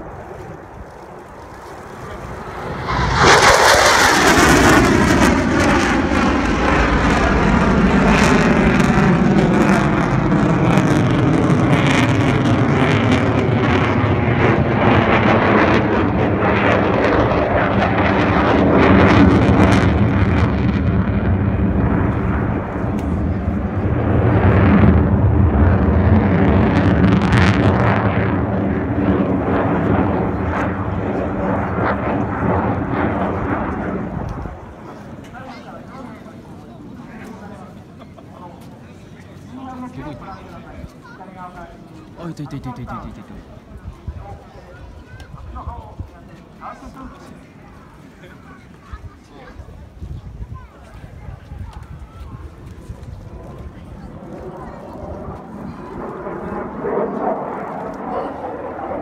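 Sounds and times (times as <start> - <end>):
fighter jet flying past: 0.0 - 38.0, 50.6 - 59.0.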